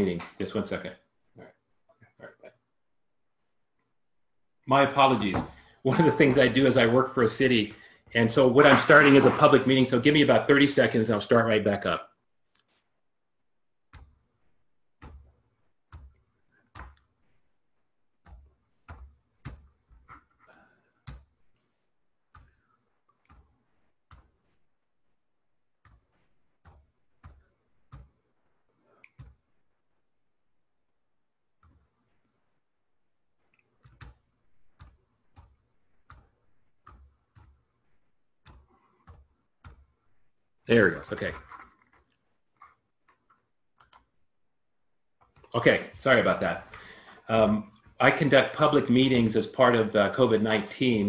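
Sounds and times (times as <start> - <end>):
computer keyboard and mouse clicks: 15.0 - 17.1, 18.2 - 24.6, 25.8 - 28.2, 29.0 - 29.4, 31.6 - 32.0, 33.4 - 40.3, 41.1 - 44.2, 45.2 - 45.6.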